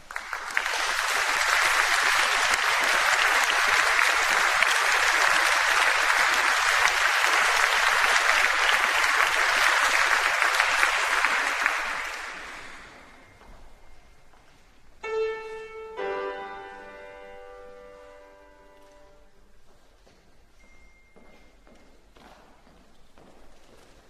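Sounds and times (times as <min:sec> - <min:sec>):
audience applause: 0:00.0 - 0:13.2.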